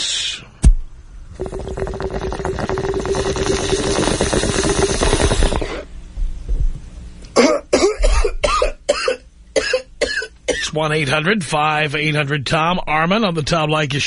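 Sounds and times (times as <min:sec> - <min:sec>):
steady hum: 0:00.0 - 0:14.0
water bubbling in a bong: 0:01.3 - 0:05.9
person coughing: 0:07.3 - 0:10.7.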